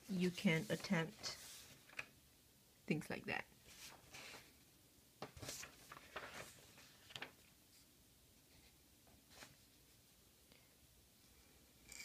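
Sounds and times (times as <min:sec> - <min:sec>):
paper rustling: 0:00.2 - 0:02.1, 0:03.6 - 0:04.6, 0:05.2 - 0:07.9.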